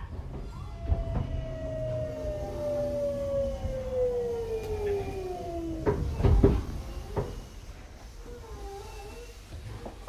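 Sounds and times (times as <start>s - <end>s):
train car knocks and clunks: 0.0s - 2.0s, 3.6s - 7.5s
train inverter whining: 0.0s - 10.0s.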